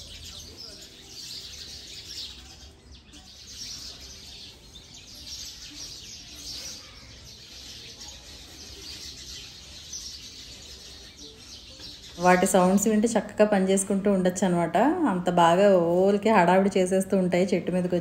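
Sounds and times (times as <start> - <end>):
flock of birds chirping: 0.0 - 18.0.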